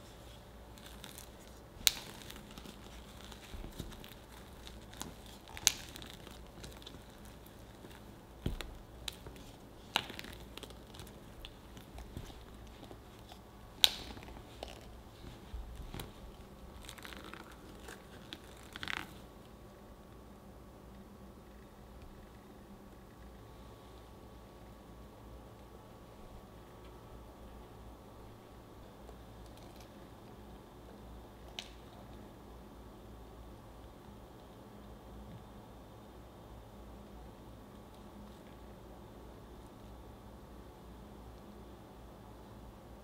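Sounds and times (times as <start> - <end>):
sticky dough scraping and pulling: 0.0 - 19.4.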